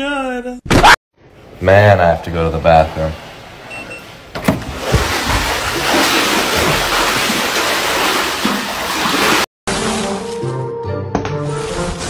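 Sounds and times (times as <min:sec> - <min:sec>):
water splashing in a pool: 0:04.5 - 0:10.4.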